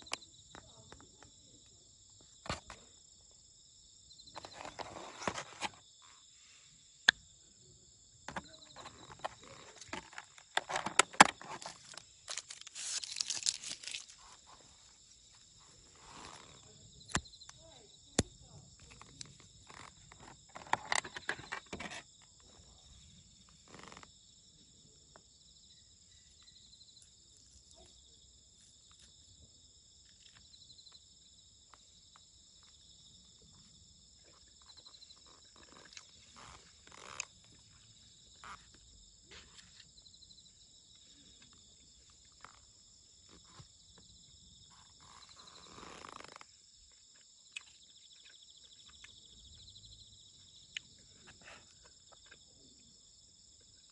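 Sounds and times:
crickets chirping: 0:00.0 - 0:53.9
plastic wrap crackling: 0:11.4 - 0:14.3.

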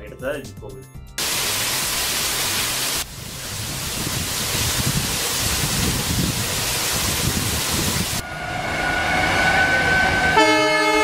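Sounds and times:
waterfall rushing: 0:01.2 - 0:08.2.

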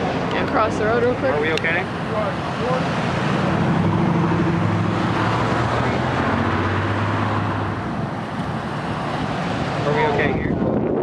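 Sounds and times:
road traffic hum: 0:00.0 - 0:11.0
strong wind on microphone: 0:03.5 - 0:11.0.

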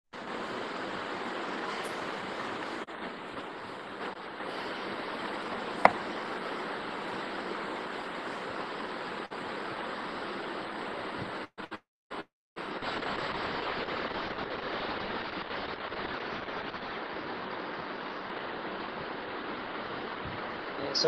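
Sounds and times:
microphone background hiss: 0:03.8 - 0:09.2.

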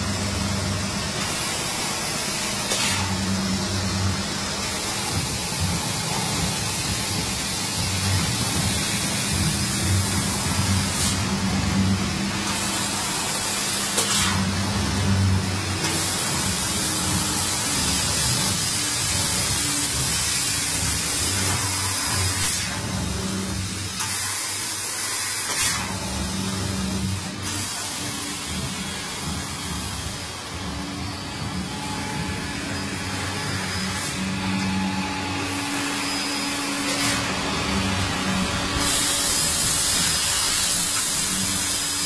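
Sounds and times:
gas hissing from cutting head: 0:38.0 - 0:42.0.

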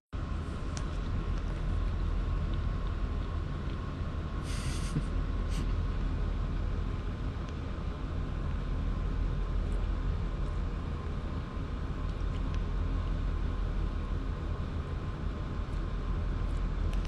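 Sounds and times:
low rumble of room noise: 0:00.2 - 0:17.0
short hiss: 0:04.4 - 0:05.6.

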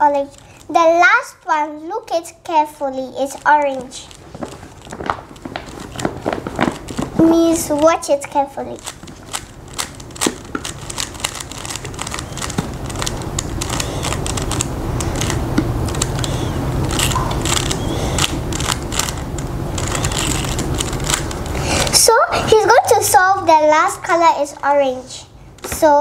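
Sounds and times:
plastic cube clicking: 0:08.8 - 0:21.4.

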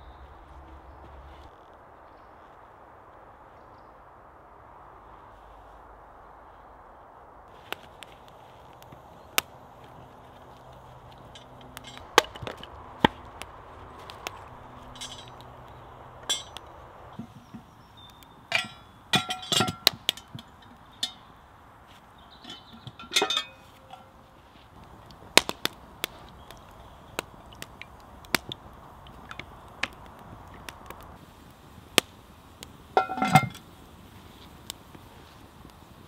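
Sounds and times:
wood fire crackling and popping: 0:04.7 - 0:36.0
cast iron pot clanking: 0:11.2 - 0:12.7, 0:14.8 - 0:15.6, 0:16.2 - 0:16.6, 0:18.4 - 0:21.3, 0:22.3 - 0:24.2, 0:33.0 - 0:33.6.

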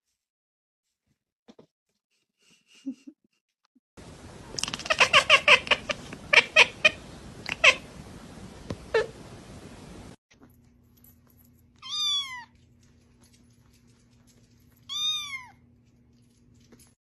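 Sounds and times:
cat chattering: 0:04.4 - 0:09.3.

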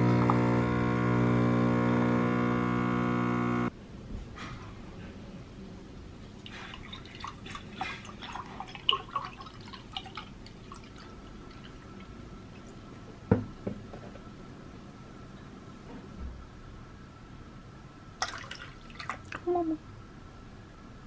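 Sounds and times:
milk pouring into a glass: 0:06.4 - 0:12.8, 0:18.2 - 0:19.4.

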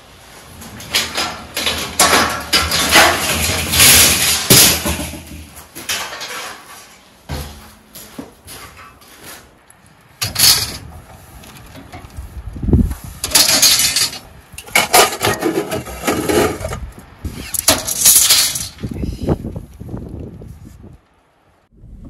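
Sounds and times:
metal rods clattering onto scrap: 0:00.5 - 0:07.7, 0:10.2 - 0:12.1, 0:13.2 - 0:18.9.

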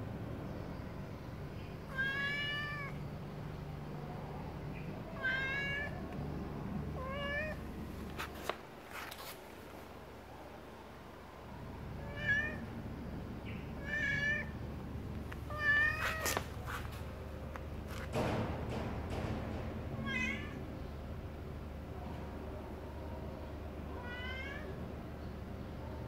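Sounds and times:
cat meowing: 0:01.9 - 0:03.0, 0:05.2 - 0:06.0, 0:07.0 - 0:07.6, 0:12.0 - 0:12.7, 0:13.8 - 0:14.6, 0:15.5 - 0:16.4, 0:24.0 - 0:24.8.

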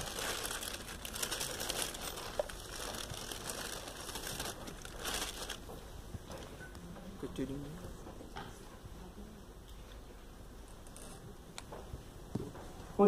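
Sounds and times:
room hiss: 0:00.0 - 0:06.3
faint rustling and crackling: 0:00.0 - 0:13.0.

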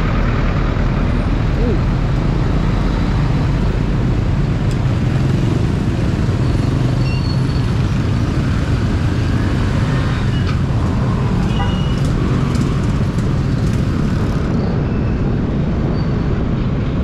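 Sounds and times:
traffic hum: 0:00.0 - 0:17.0
scooter engine running: 0:10.6 - 0:14.5.

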